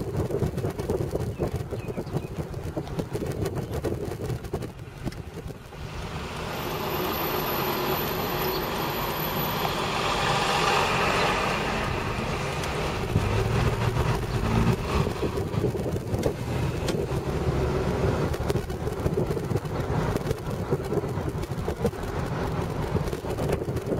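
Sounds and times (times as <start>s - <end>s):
car road noise: 0.0s - 23.9s
bus passing: 4.8s - 23.9s.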